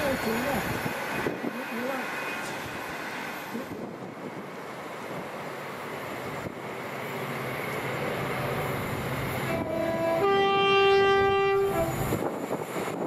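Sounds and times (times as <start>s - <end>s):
train rumble: 0.0s - 13.0s
two-tone train horn: 9.5s - 12.2s.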